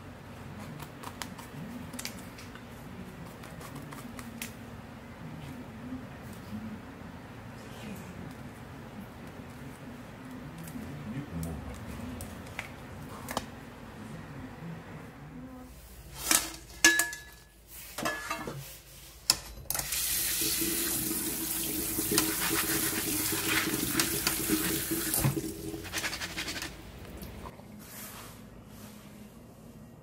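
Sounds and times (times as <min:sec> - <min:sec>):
tap water running into sink: 0:19.8 - 0:27.4.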